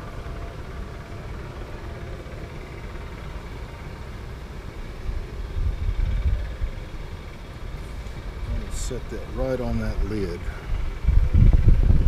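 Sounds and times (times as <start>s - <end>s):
low rumble: 4.8s - 12.0s.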